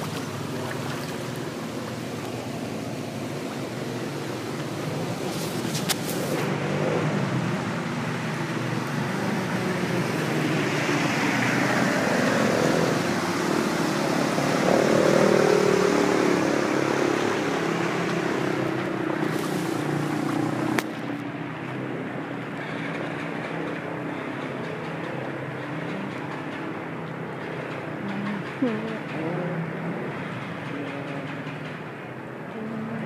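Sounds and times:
motorbike splashing through water: 0.0 - 23.3
floodwater rushing along street: 0.0 - 33.0.

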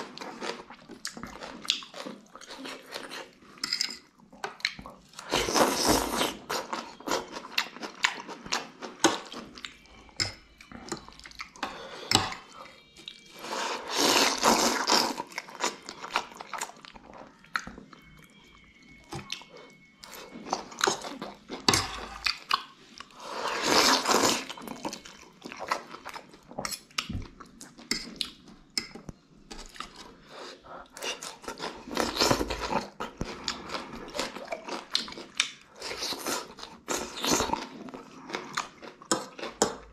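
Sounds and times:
wet chewing and smacking: 0.0 - 3.6, 4.2 - 11.6, 30.9 - 39.9
slurping noodles: 13.4 - 15.3, 23.1 - 24.6.

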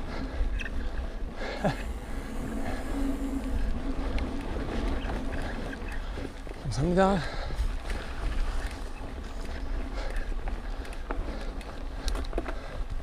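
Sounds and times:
bike tyre rumble on dirt: 0.0 - 13.0
wind buffeting camera: 0.0 - 13.0.

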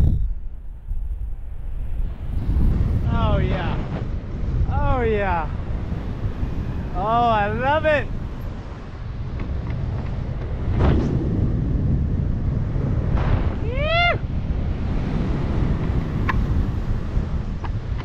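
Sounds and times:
wind buffeting microphone: 0.0 - 18.0
rising vocal whoop: 13.6 - 14.2.

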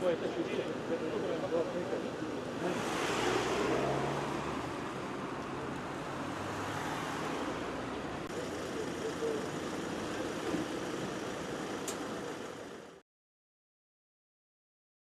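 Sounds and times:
road traffic hiss: 0.0 - 13.0.

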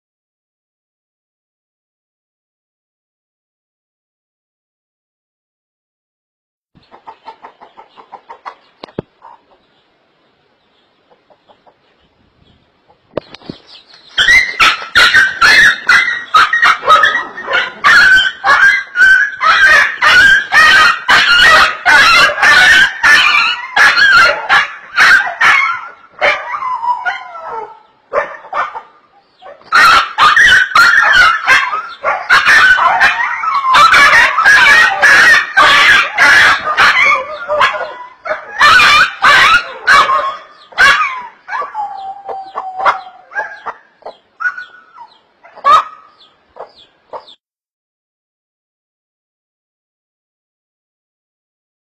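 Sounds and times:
small dog yelping and barking: 14.0 - 47.4
dog whining: 29.5 - 43.6.

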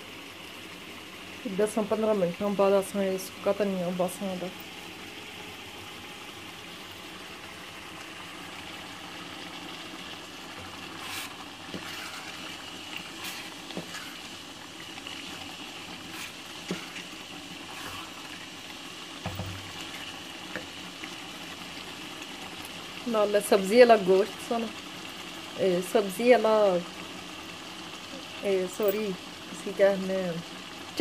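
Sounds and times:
curry sizzling in oil: 0.0 - 31.0
wooden spoon scraping a pot: 10.5 - 18.5, 19.2 - 21.1.

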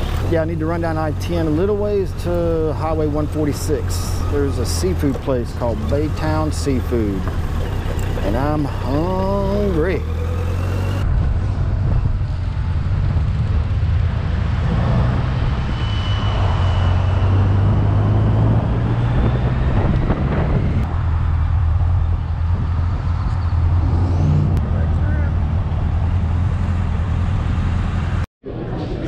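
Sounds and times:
motorcycle engine running: 0.0 - 14.3
road noise: 0.0 - 29.0.

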